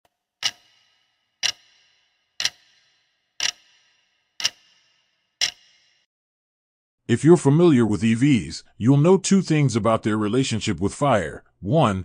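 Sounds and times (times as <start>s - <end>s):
sharp ringing ticks: 0.4s - 6.1s.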